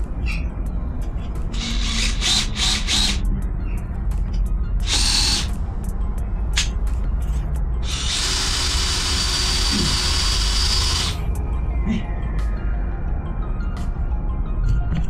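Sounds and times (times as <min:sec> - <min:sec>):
cordless drill motor whine: 0:01.6 - 0:03.2, 0:04.8 - 0:05.5, 0:07.8 - 0:11.2.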